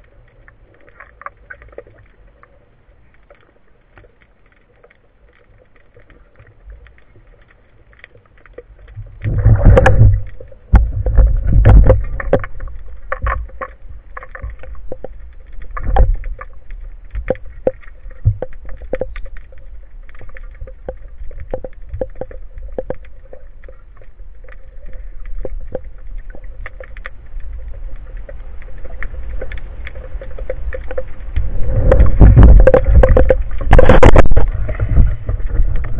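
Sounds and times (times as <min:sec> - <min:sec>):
water sloshing underwater: 0:00.0 - 0:35.9
gear clicks and knocks: 0:08.0 - 0:27.2, 0:28.2 - 0:35.9
deep rumbling water surges: 0:09.1 - 0:35.9.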